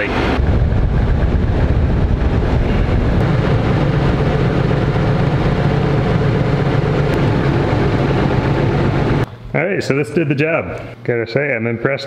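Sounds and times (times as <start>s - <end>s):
tractor diesel engine running: 0.0s - 9.3s.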